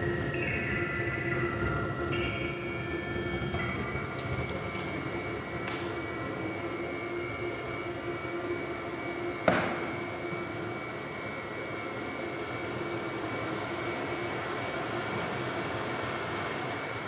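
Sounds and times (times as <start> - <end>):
rumbling drone with held tones: 0.0 - 12.8.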